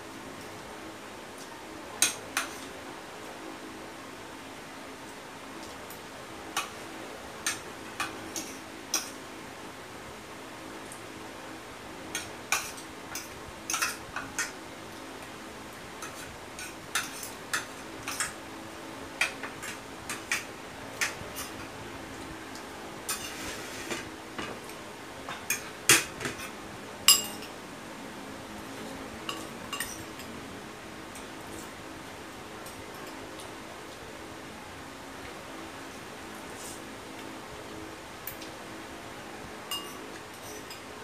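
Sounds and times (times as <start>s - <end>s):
cutlery clinking and scraping on plate: 12.2s - 14.6s, 16.0s - 18.4s, 23.1s - 24.6s, 27.1s - 27.5s, 29.3s - 30.1s, 39.7s - 40.8s.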